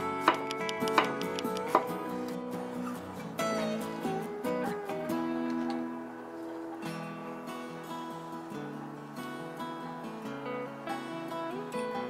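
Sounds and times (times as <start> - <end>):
plucked acoustic guitar music: 0.0 - 12.0.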